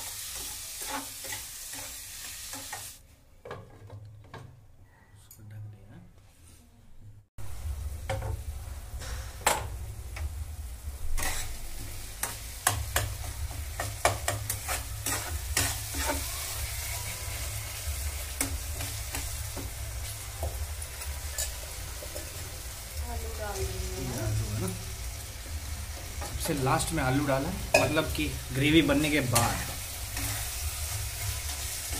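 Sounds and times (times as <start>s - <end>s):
gravy sizzling in a pan: 0.0s - 3.0s, 7.4s - 31.9s
metal spatula scraping pan: 11.1s - 13.0s, 13.7s - 20.2s, 21.0s - 22.3s, 29.2s - 31.9s.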